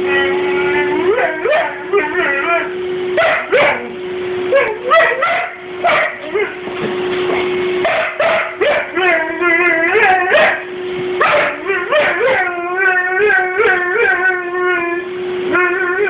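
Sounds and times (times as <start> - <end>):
dog howling and whining: 0.0 - 6.6, 8.1 - 16.0
vacuum cleaner hum: 0.0 - 16.0.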